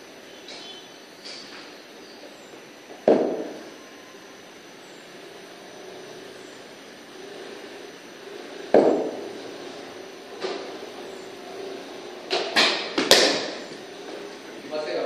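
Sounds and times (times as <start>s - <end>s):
steady background hum: 0.0s - 15.0s
cricket bat striking ball: 3.0s - 3.7s, 8.8s - 9.2s, 12.3s - 13.6s.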